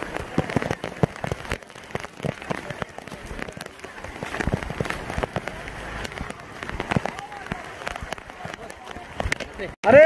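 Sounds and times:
close raindrop hits: 0:00.0 - 0:10.0
torrential rain: 0:00.0 - 0:10.0.

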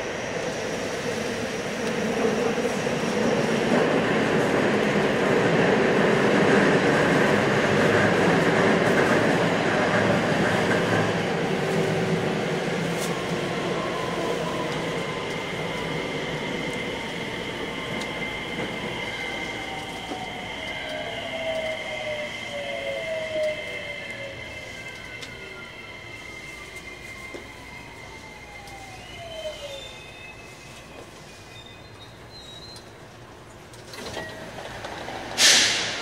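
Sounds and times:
electric train running on rails: 0:00.0 - 0:36.0.

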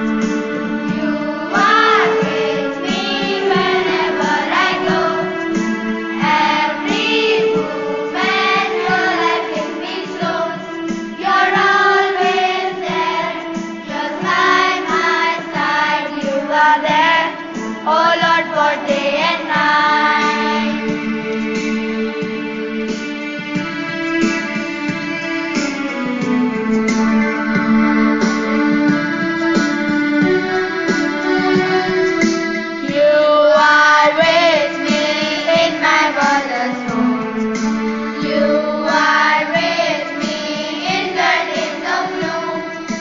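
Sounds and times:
held keyboard chords: 0:00.0 - 0:43.0.

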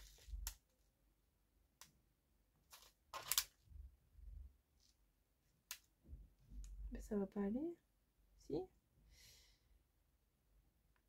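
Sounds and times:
soft plastic rustle: 0:00.0 - 0:00.9
plastic packets clicking: 0:02.7 - 0:03.6.

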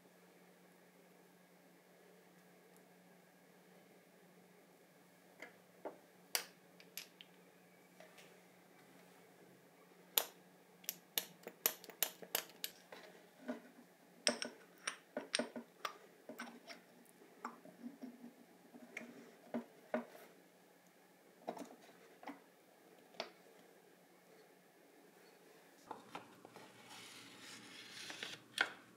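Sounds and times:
small hard objects clicking: 0:10.2 - 0:12.8.

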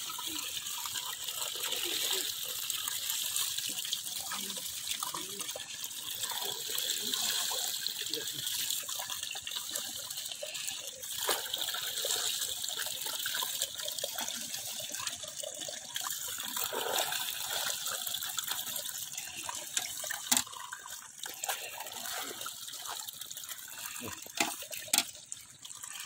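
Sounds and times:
water gushing: 0:00.0 - 0:26.0.

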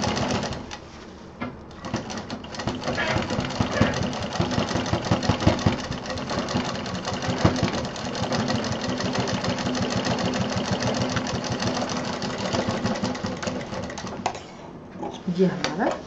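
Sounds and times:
sewing machine running: 0:00.0 - 0:00.7, 0:01.7 - 0:14.3.

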